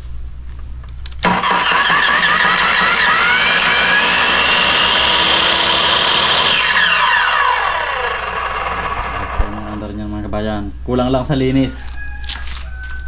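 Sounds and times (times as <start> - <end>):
miter saw motor whine: 1.2 - 10.0.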